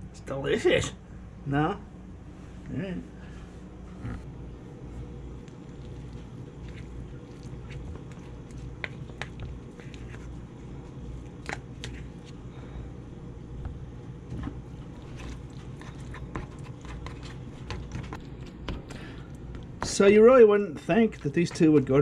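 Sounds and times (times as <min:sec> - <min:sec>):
steady low hum: 0:00.0 - 0:22.0
soft wet squishes of food: 0:04.1 - 0:12.8, 0:13.6 - 0:22.0.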